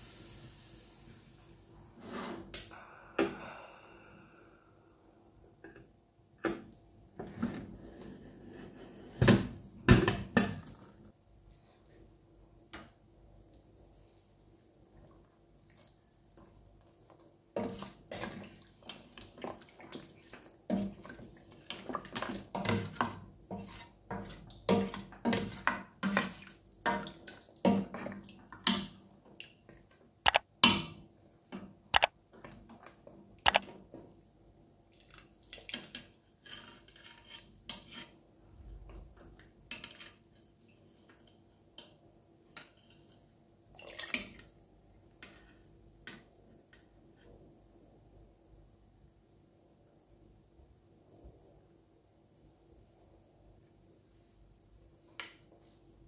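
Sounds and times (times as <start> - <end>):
liquid sloshing and dripping: 14.8 - 22.4, 34.9 - 36.0, 43.7 - 44.7
ladle scraping metal pot: 35.8 - 38.2.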